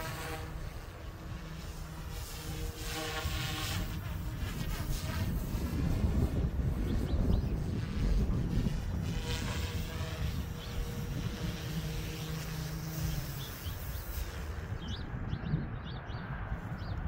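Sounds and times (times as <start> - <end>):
rc helicopter rotors whirring: 0.0 - 15.3
wind buffeting microphone: 0.0 - 17.0
birds chirping: 6.7 - 8.2, 9.2 - 17.0.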